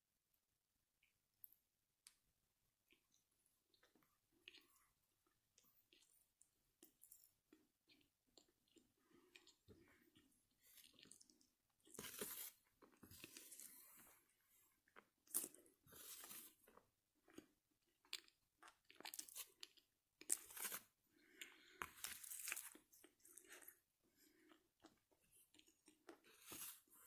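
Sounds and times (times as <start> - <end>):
person chewing crunchy food: 6.8 - 27.0.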